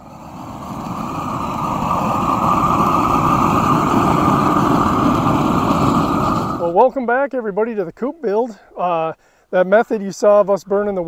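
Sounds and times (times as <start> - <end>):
torch flame rushing: 0.0 - 6.8.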